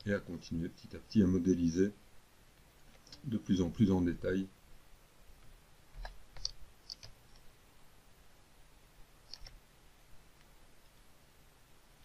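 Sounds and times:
computer mouse clicking: 0:06.0 - 0:07.5, 0:09.2 - 0:09.6.

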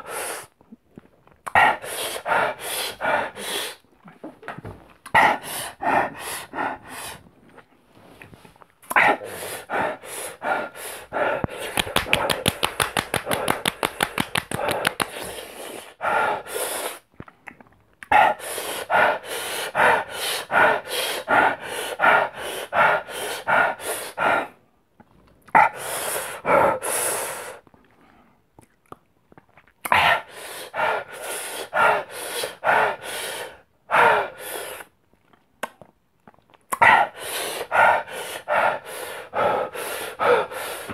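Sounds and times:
man panting through clenched teeth: 0:01.5 - 0:03.8, 0:05.0 - 0:07.7, 0:08.8 - 0:17.1, 0:18.0 - 0:24.7, 0:25.6 - 0:27.6, 0:29.9 - 0:34.9, 0:36.7 - 0:40.9.

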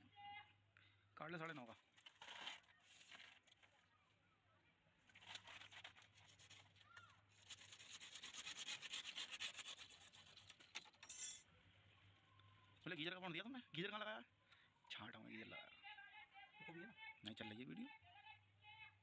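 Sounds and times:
hacksaw sawing plastic pipe: 0:07.4 - 0:10.9.

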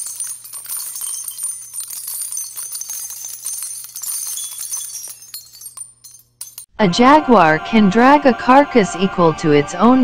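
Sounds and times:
jingling shimmer sound effect: 0:00.0 - 0:06.7.

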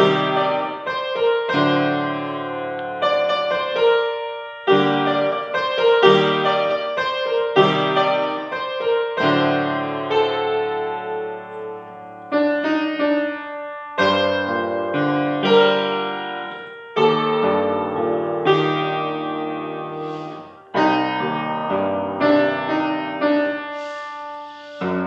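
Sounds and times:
grand piano chords: 0:00.0 - 0:25.0.

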